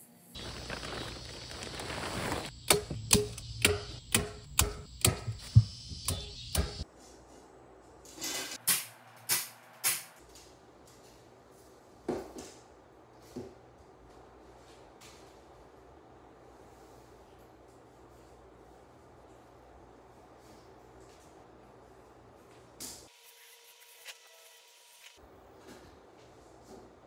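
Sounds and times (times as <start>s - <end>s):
plastic sheeting crinkling: 0.4s - 2.5s.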